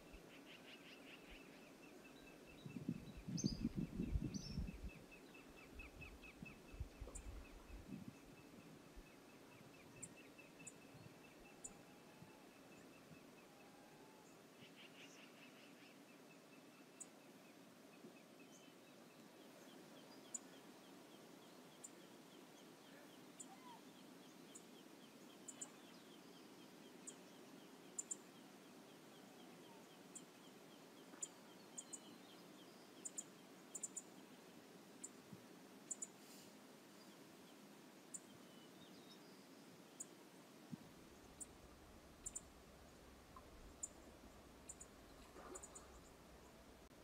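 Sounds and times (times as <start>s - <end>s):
outdoor background noise: 0.0s - 47.0s
faint bird call: 22.9s - 23.9s.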